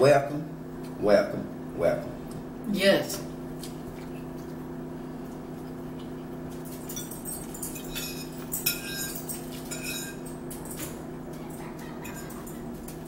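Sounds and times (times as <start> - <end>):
forks clinking on plates: 6.5 - 13.0.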